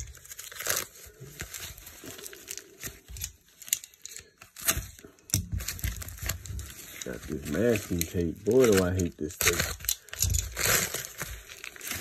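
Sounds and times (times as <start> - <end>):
foam wrap crinkling and tearing: 0.0 - 12.0
scissors cutting foam: 0.0 - 12.0.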